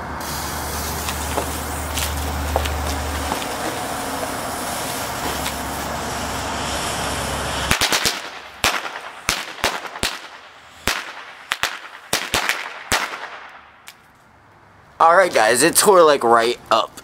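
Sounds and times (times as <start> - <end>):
steady hiss: 0.0 - 12.8
firecrackers banging: 0.0 - 14.2.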